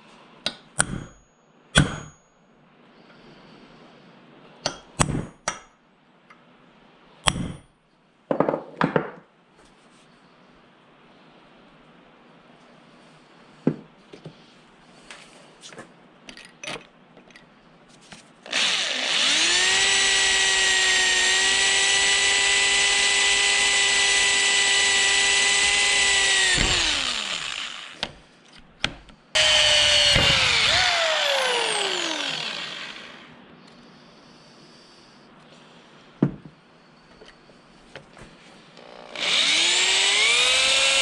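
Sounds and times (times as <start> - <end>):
electric drill whining: 18.5 - 28.1, 29.4 - 33.4, 38.7 - 41.0.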